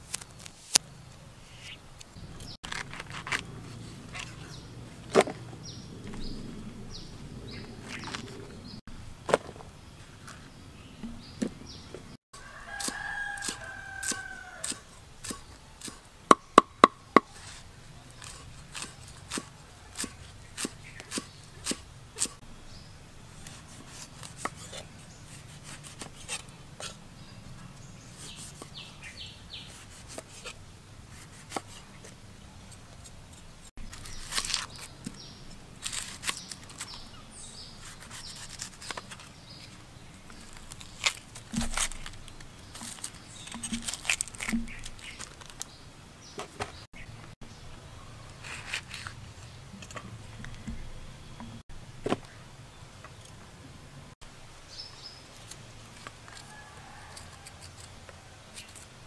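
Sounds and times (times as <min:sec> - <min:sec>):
crisp slicing: 0:33.8 - 0:34.9, 0:40.3 - 0:45.7.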